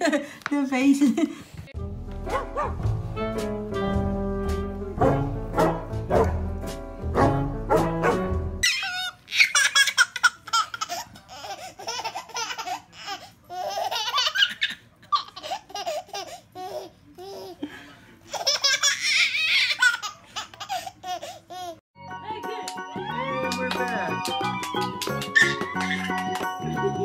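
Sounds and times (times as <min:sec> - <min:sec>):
baby laughing: 0:08.6 - 0:17.7, 0:18.3 - 0:21.8, 0:25.2 - 0:26.6.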